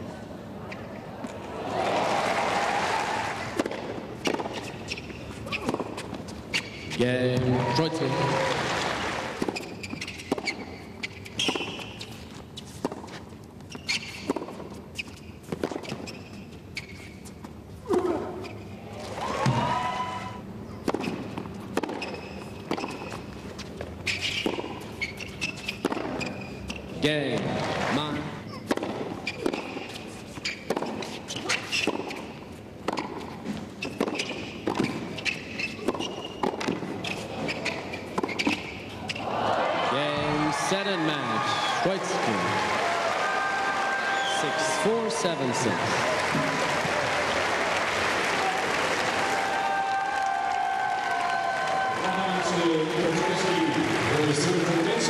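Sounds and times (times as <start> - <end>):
rackets hitting tennis ball: 3.5 - 7.6, 9.3 - 16.2, 20.8 - 39.3
shoe squeaks: 4.2 - 7.1, 9.4 - 18.8, 20.0 - 27.0, 28.2 - 39.3.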